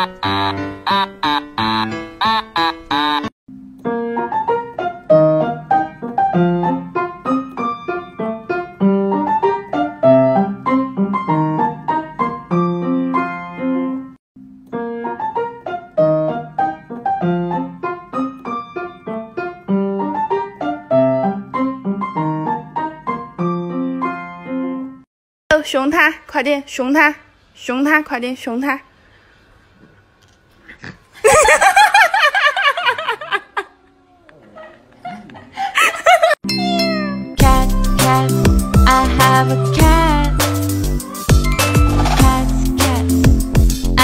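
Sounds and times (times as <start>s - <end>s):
piano music: 0.0s - 25.0s, 36.4s - 44.0s.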